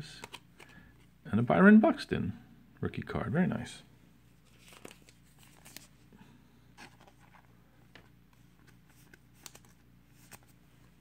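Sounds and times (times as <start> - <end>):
cards rustling: 0.1 - 1.1, 4.3 - 11.0.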